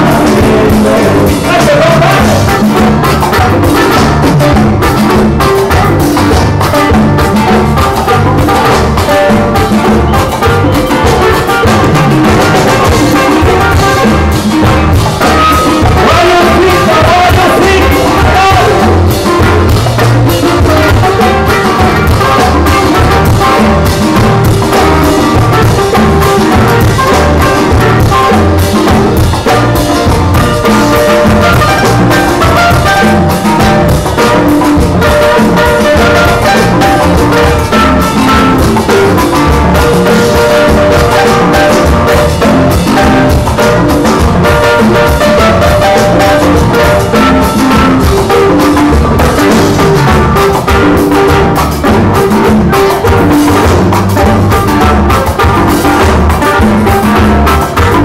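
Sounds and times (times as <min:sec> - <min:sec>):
congas: 0:00.0 - 0:58.0
electric bass: 0:00.0 - 0:58.0.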